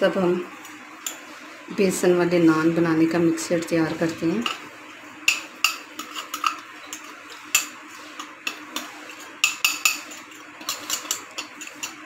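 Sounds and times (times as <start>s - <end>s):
metal fork clinking against bowls: 5.3s - 12.0s.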